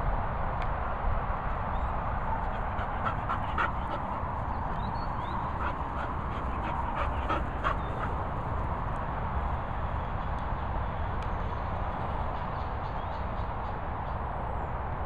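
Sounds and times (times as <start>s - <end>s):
dog whimpering: 2.4s - 8.2s.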